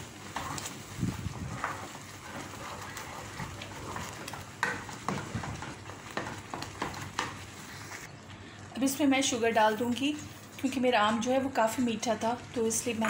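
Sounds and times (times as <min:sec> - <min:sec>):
wooden spatula scraping pan: 0:00.0 - 0:08.1.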